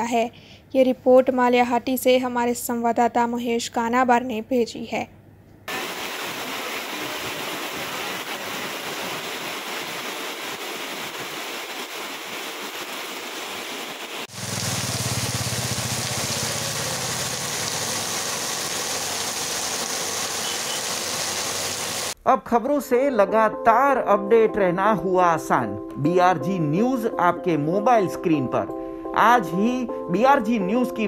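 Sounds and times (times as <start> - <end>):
heavy rain hiss: 5.7 - 22.2
water running along street: 5.7 - 22.2.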